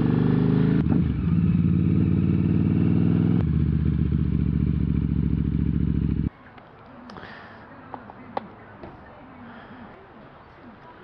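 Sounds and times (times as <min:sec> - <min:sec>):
motorcycle engine idling: 0:00.9 - 0:06.3.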